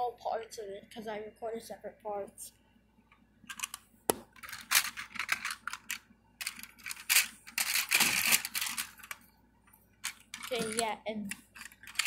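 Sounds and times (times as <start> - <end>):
model train pieces clattering: 4.4 - 9.2, 10.0 - 12.0.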